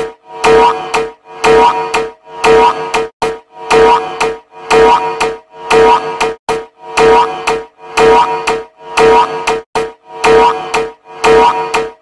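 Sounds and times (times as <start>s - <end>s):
looping electronic standby music: 0.0s - 12.0s.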